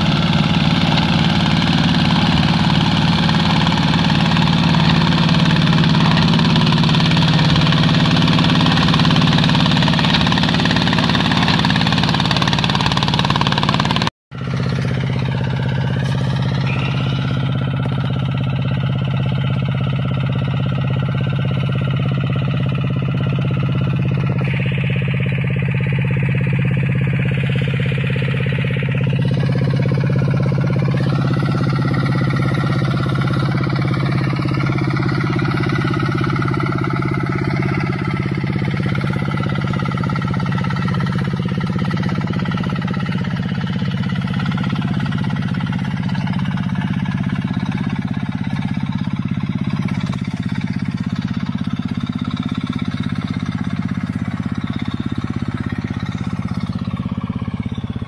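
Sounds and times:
small tractor engine running: 0.0 - 58.0.

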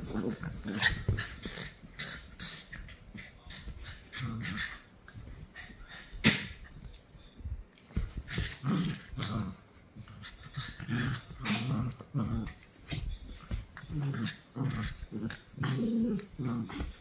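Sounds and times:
dogs growling: 0.0 - 4.9, 8.2 - 12.7, 13.8 - 17.0.

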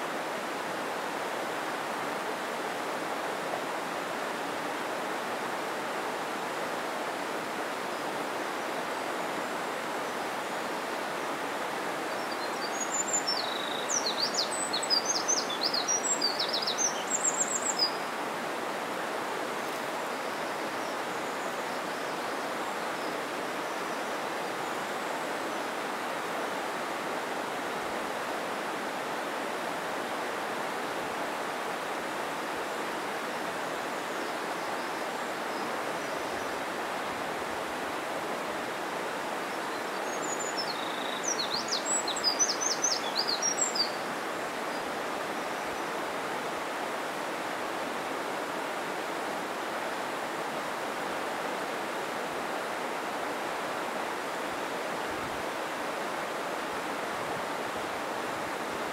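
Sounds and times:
stream water rushing: 0.0 - 58.9.

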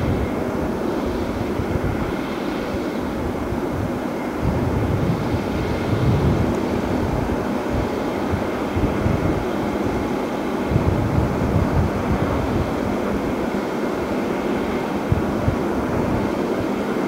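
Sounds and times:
faint steady whine: 0.0 - 17.0.

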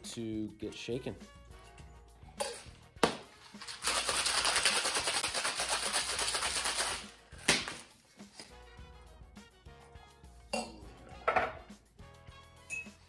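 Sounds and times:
ice rattling in shaker: 3.5 - 7.2
metal shaker tins knocking: 10.6 - 11.6.

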